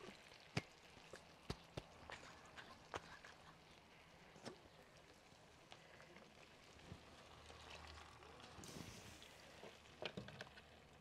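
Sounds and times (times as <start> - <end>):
liquid sizzling in hot clay pot: 3.3 - 11.0.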